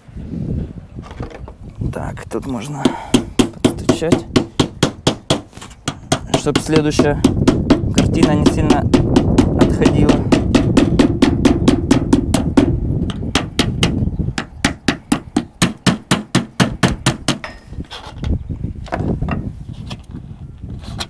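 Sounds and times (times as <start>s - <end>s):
mallet tapping aluminium panel: 3.1s - 17.6s.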